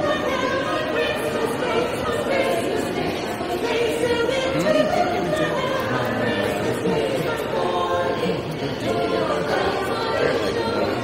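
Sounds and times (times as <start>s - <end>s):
vocal group singing in harmony: 0.0s - 11.0s.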